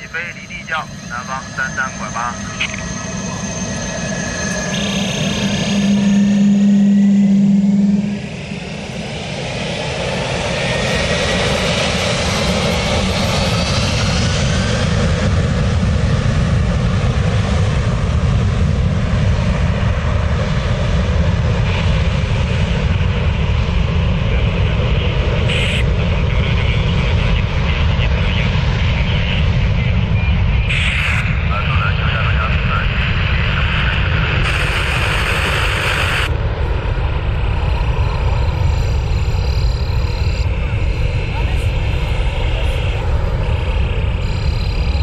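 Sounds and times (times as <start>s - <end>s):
steady low tone: 0.0s - 13.0s
jet engines spooling up: 0.0s - 45.0s.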